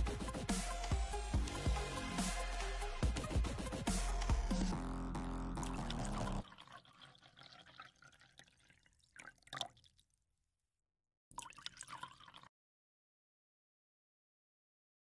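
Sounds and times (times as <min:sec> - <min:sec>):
background music: 0:00.0 - 0:06.4.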